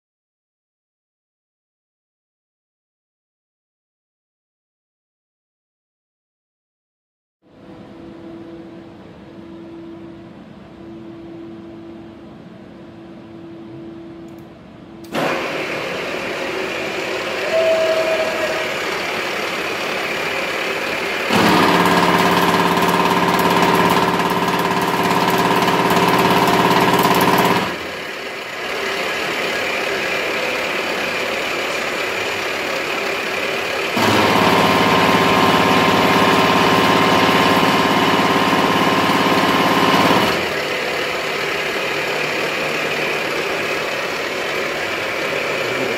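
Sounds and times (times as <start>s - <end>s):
milling machine cutting metal: 15.1s - 45.9s
milling machine running: 15.1s - 45.9s.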